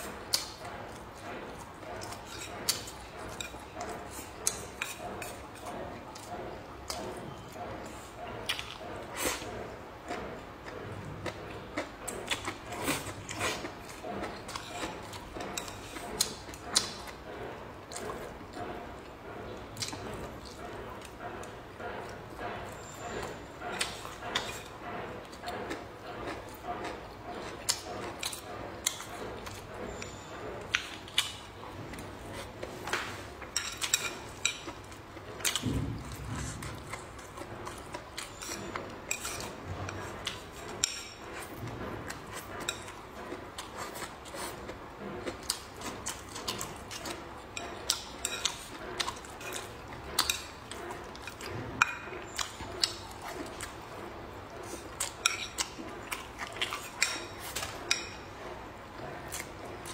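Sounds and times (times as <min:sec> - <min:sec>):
slurping and chewing food: 0:00.0 - 0:59.9
low dull thud: 0:35.6 - 0:36.4.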